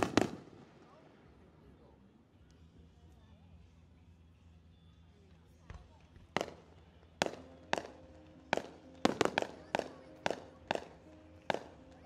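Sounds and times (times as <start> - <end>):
fireworks bursting: 0.0 - 1.0, 6.4 - 6.6, 7.2 - 12.0.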